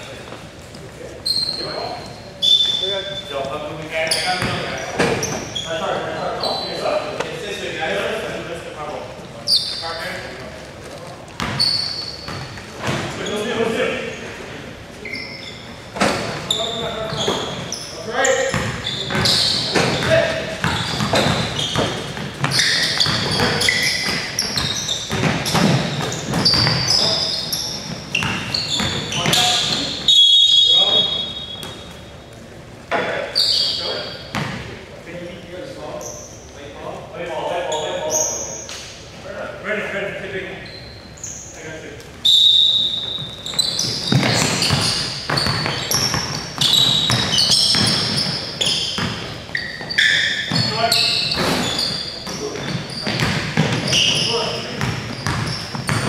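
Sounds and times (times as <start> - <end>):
sneakers squeaking: 0.0 - 36.7, 37.6 - 39.2, 40.5 - 56.0
basketball bouncing on hardwood: 18.5 - 26.8, 44.0 - 48.3.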